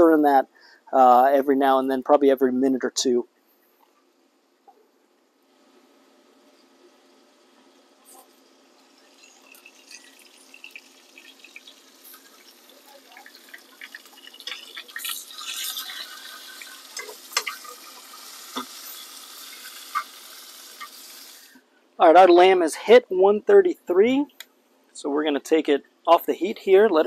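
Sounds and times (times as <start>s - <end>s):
carrots sizzling in a pan: 8.0s - 21.6s.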